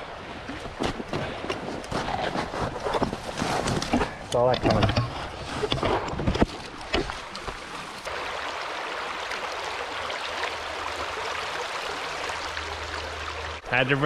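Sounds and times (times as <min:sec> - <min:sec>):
creek rushing: 0:06.7 - 0:14.0.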